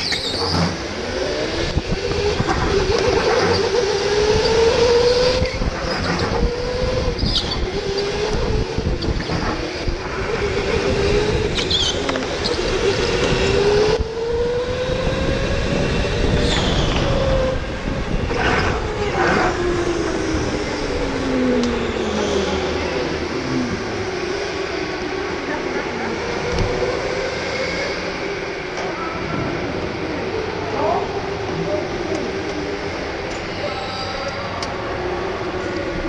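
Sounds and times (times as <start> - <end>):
high squeals: 0.0 - 0.9, 3.2 - 13.5
electric go-kart motor whining: 0.0 - 36.0
road and wind noise: 0.0 - 36.0.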